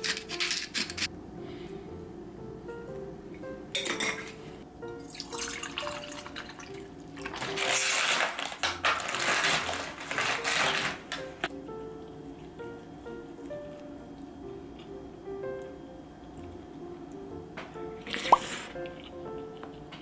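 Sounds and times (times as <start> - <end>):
dishes clinking: 3.7 - 7.4
water running: 3.7 - 20.0.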